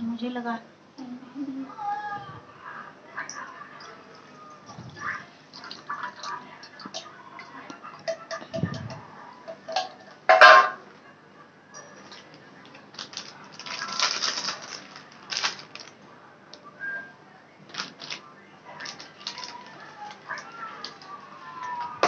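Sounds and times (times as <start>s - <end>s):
liquid pouring: 3.5s - 8.2s
steel pot clinking on metal pan: 8.0s - 10.8s
plastic packet rustling: 12.1s - 16.0s, 17.7s - 22.0s.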